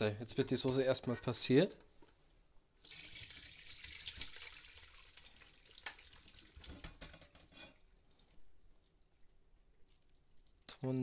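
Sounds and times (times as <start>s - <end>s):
gravy pouring through sieve: 2.8s - 8.4s.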